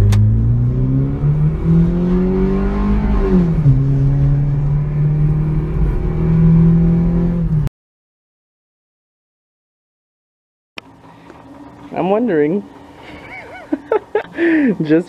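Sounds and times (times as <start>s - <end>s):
car engine accelerating: 0.0s - 7.7s.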